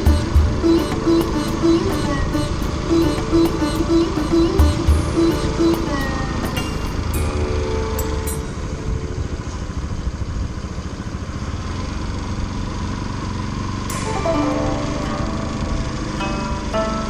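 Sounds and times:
background music: 0.0s - 9.5s, 13.9s - 17.0s
motorcycle engine idling: 0.0s - 13.9s.

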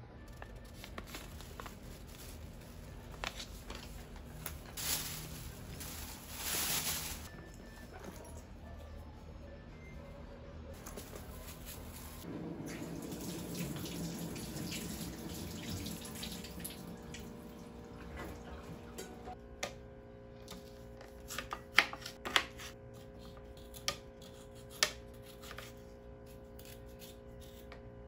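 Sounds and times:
tap water running: 12.2s - 19.4s.

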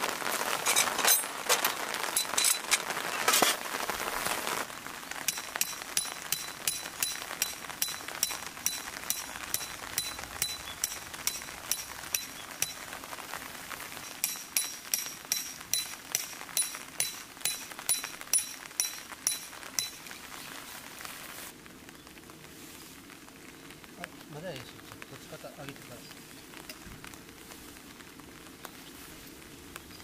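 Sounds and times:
rain hissing: 0.0s - 30.0s
hammer striking metal tent stake: 5.3s - 12.8s, 14.0s - 20.0s.

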